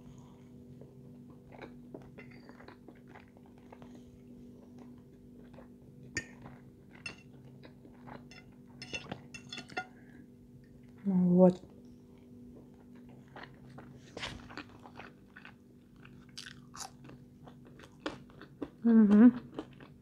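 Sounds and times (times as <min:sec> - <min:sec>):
faint steady hum: 0:00.0 - 0:20.0
soft chewing: 0:00.2 - 0:10.1, 0:11.6 - 0:20.0
fork clinking on plate: 0:07.0 - 0:07.3, 0:08.3 - 0:09.9.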